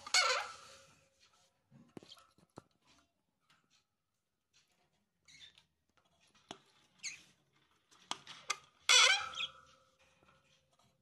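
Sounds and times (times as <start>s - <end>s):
lovebirds squeaky chirps: 8.9s - 9.5s.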